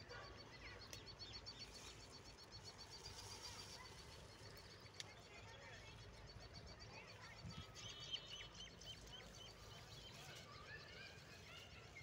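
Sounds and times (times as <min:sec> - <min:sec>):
birds chirping and calling: 0:00.0 - 0:12.0.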